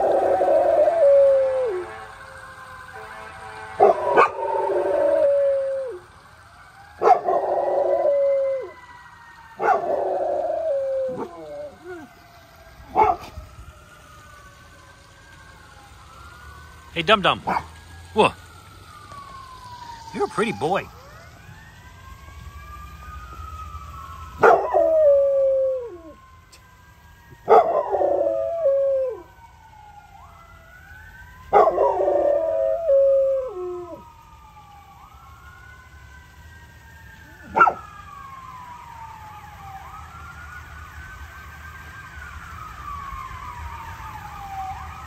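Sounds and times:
emergency siren wailing: 0.0 - 45.0
dog howling: 3.8 - 6.0, 9.6 - 12.1, 24.4 - 26.2, 31.5 - 34.0.

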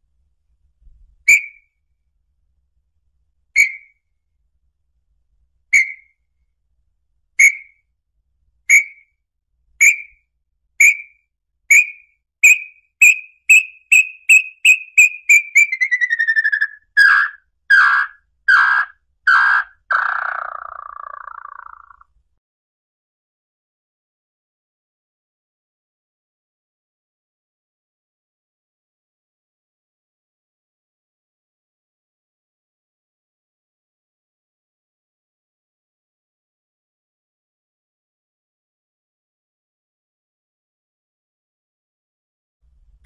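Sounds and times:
bird whistling song: 1.3 - 1.7, 3.6 - 4.0, 5.7 - 6.2, 7.4 - 7.8, 8.7 - 9.2, 9.8 - 10.2, 10.8 - 22.0.

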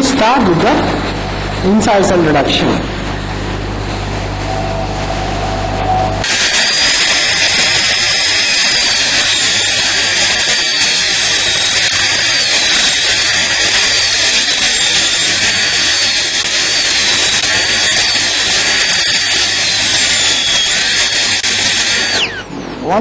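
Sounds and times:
dental drill whining: 4.5 - 22.5.

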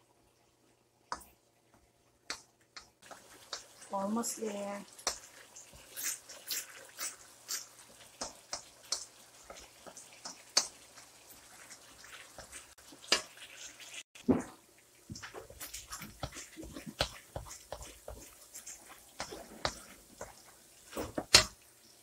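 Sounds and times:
boiling cream popping: 0.0 - 22.0
wooden spoon scraping a pan: 3.0 - 14.2, 15.1 - 21.6.

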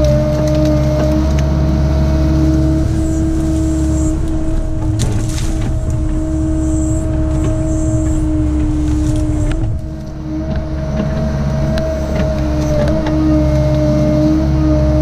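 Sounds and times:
excavator diesel engine running: 0.0 - 15.0
steady whine: 0.0 - 15.0
brush cracking in grapple: 2.4 - 13.2.

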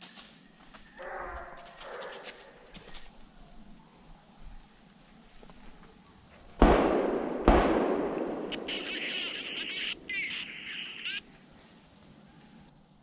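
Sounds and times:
high wavering animal calls: 0.9 - 3.1, 8.5 - 12.7
gunshots with rolling echo: 6.6 - 11.3.

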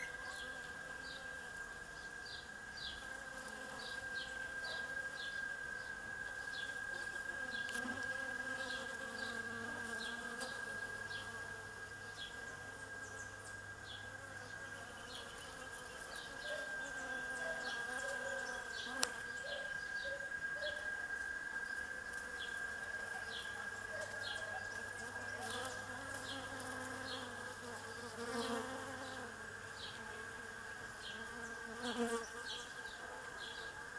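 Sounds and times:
bees buzzing: 6.6 - 13.4, 24.8 - 32.9.

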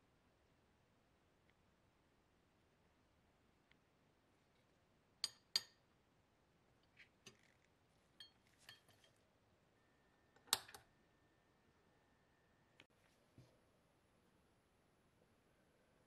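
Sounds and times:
faint high whine: 7.4 - 16.0.

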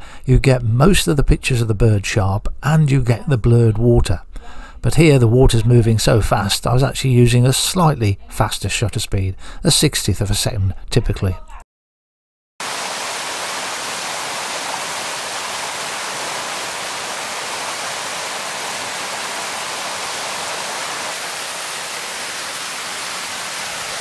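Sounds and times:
stream water rushing over waterfall: 12.6 - 24.0.

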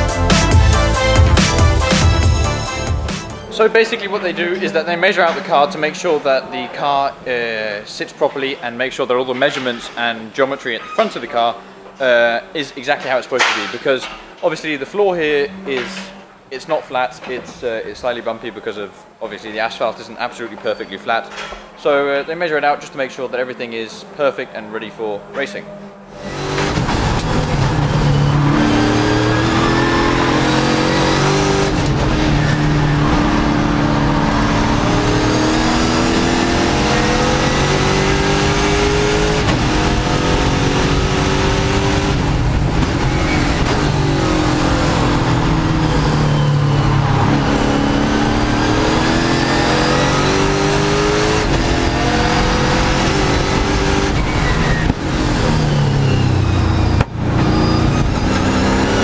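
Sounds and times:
race car engine revving: 23.4 - 59.0.

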